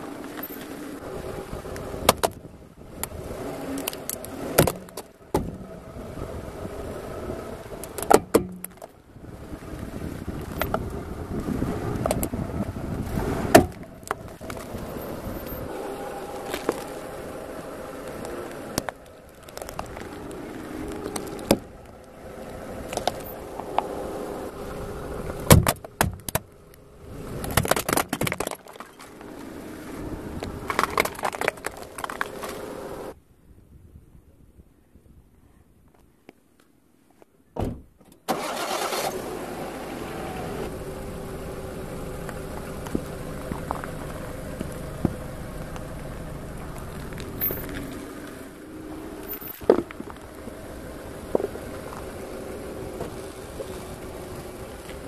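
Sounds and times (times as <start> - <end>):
car engine running: 0.0 - 33.2, 38.4 - 55.0
tyre rolling over gravel: 9.7 - 24.2, 27.3 - 33.1, 42.3 - 55.0
plastic cracking and crunching: 27.4 - 29.1, 30.6 - 32.6.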